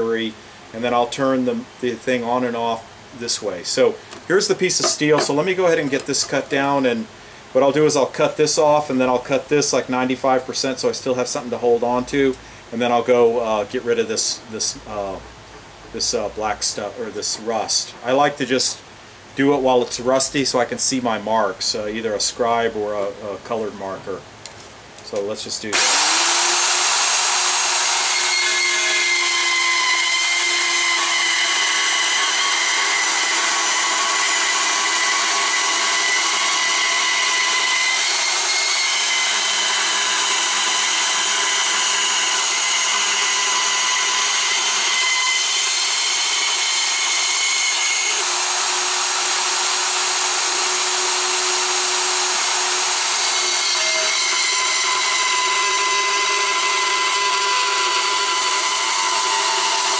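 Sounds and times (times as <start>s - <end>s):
band saw cutting steel: 4.4s - 6.9s, 25.7s - 59.9s.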